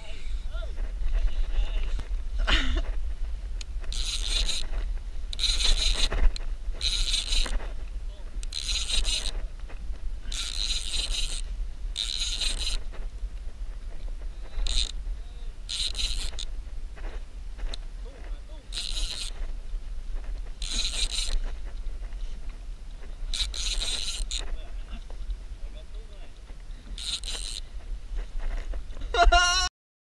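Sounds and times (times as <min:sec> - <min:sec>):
wind rumbling on microphone: 0:00.0 - 0:29.4
fishing reel whirring: 0:03.6 - 0:07.7, 0:08.4 - 0:09.5, 0:10.2 - 0:12.9, 0:14.4 - 0:15.0, 0:15.6 - 0:16.5, 0:18.6 - 0:19.5, 0:20.5 - 0:21.7, 0:23.1 - 0:24.6, 0:26.8 - 0:28.7.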